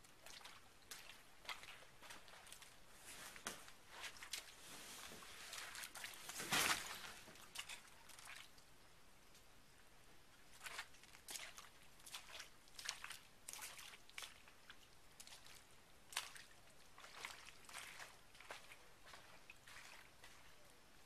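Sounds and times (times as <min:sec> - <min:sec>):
footsteps squelching in mud: 0:10.6 - 0:14.5, 0:15.2 - 0:20.7.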